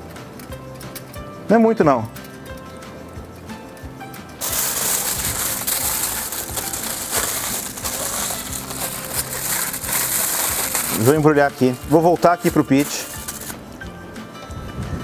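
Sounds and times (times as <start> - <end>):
aluminium foil crinkling: 4.4 - 13.6.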